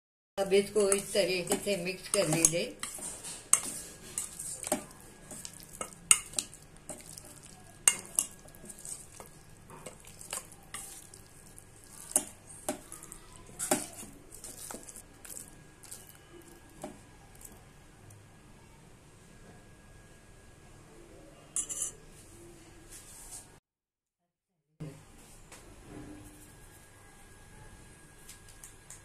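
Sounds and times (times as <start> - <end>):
metal spoon scraping steel bowl: 0.7 - 6.5, 21.6 - 22.0.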